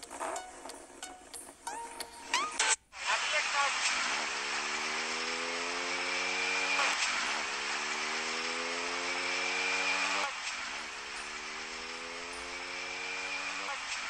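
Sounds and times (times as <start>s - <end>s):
motorcycle engine accelerating: 3.8s - 14.0s.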